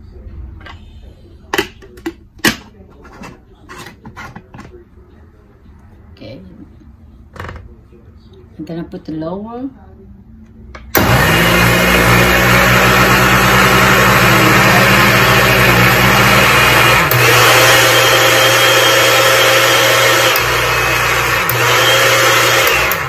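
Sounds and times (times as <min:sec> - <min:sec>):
blender motor running: 0:11.0 - 0:23.0.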